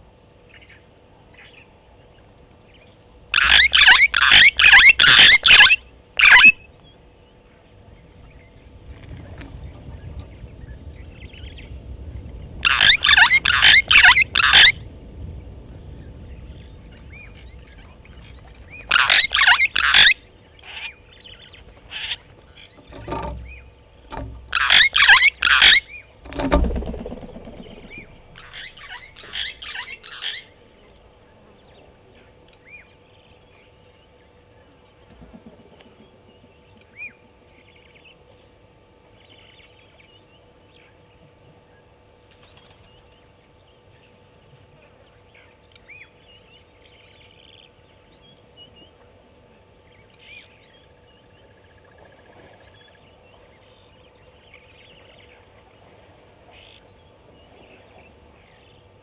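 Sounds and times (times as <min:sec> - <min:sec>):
faint steady hum: 0:00.0 - 0:59.0
bird chirps: 0:00.5 - 0:07.5, 0:12.6 - 0:14.8, 0:16.0 - 0:30.6.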